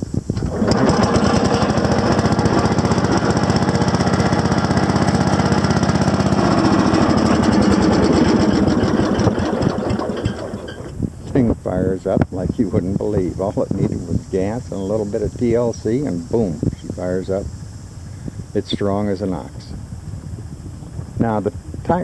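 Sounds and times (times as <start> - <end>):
small engine running: 0.4 - 11.0.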